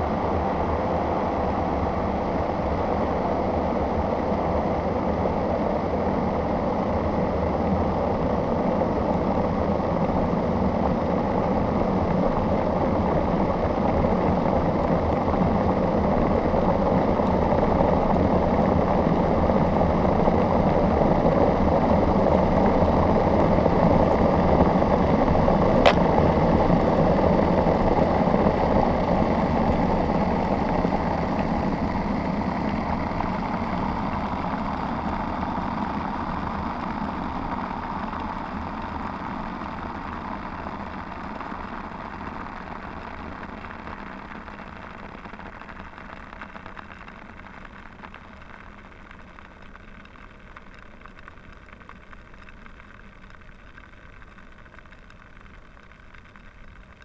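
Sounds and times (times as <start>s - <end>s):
electric kettle boiling: 0.0s - 57.0s.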